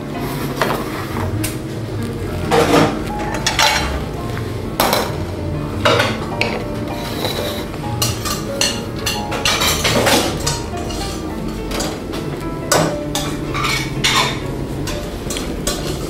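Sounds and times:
metal pots clanking on stove grate: 2.5s - 4.1s, 4.8s - 16.0s.

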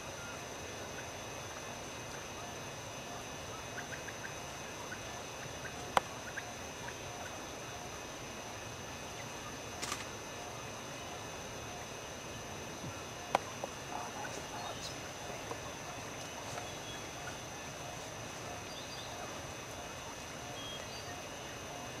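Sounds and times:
high-pitched insect drone: 0.0s - 22.0s
quails clucking: 3.2s - 7.8s, 13.1s - 22.0s
sharp click: 9.8s - 10.1s.

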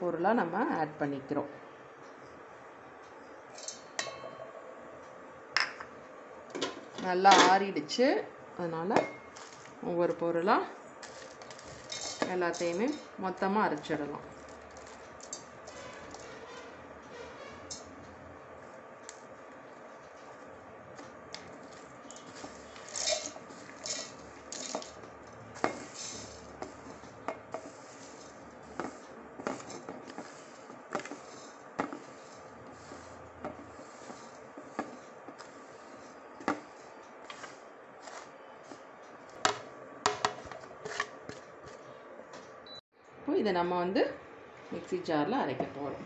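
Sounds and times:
seeds rattling into steel jar: 11.0s - 13.0s, 22.1s - 25.0s, 25.8s - 26.4s
fingers scraping a plate: 26.6s - 36.7s.

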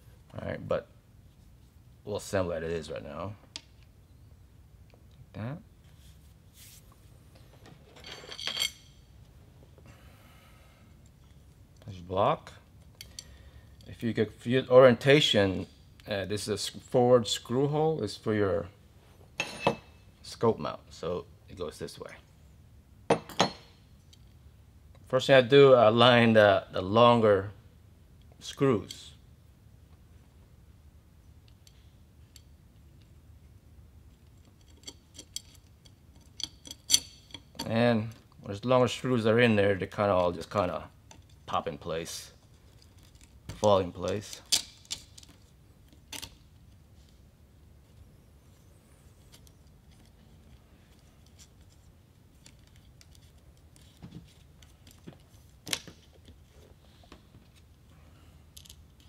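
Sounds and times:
metal parts clicking: 34.2s - 37.8s, 44.0s - 46.8s.

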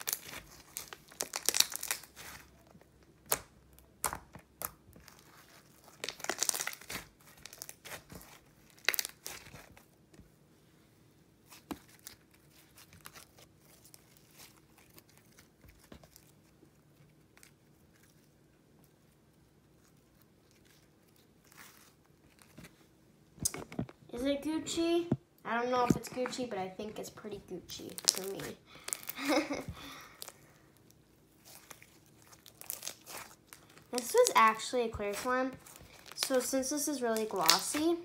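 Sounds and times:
slime squished between hands: 0.0s - 10.1s, 27.7s - 38.0s.

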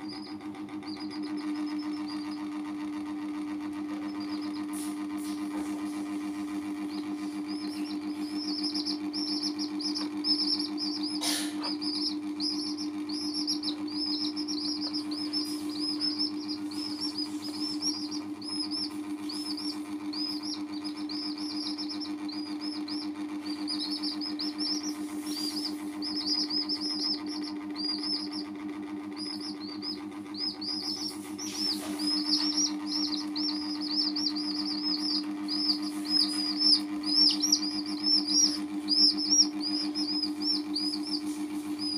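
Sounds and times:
chicks peeping: 0.0s - 41.9s
steady low hum: 0.0s - 41.9s.

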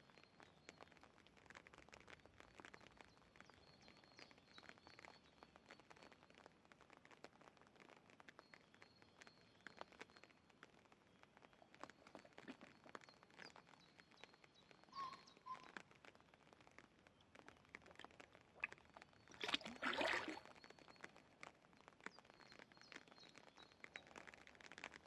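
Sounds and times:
faint clicks and pops: 0.0s - 25.0s
fish slurping splash: 17.9s - 20.5s.

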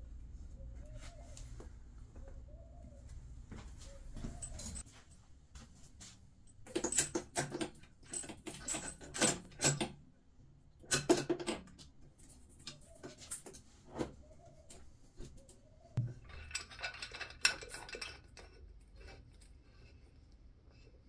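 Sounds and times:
metal clicks and knocks: 6.6s - 10.0s, 10.8s - 12.0s, 16.0s - 18.6s.

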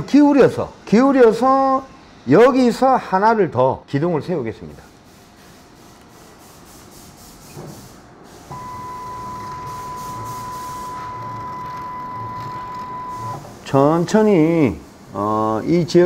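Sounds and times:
faint handling sounds: 4.9s - 13.3s.

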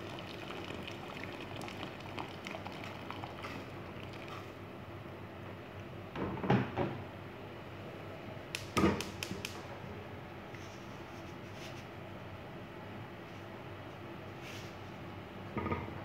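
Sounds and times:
pot of water hissing on stove: 0.0s - 4.6s.

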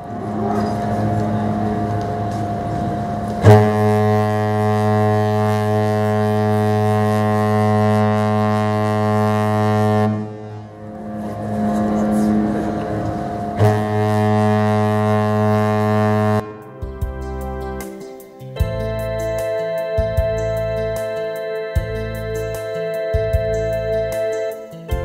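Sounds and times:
deep ship's horn blast: 0.0s - 16.8s.

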